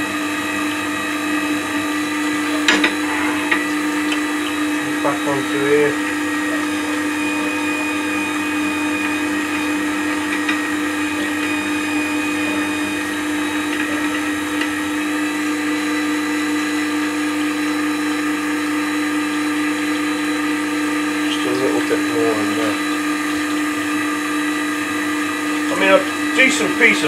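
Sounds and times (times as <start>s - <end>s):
sharpener motor humming: 1.2s - 17.7s.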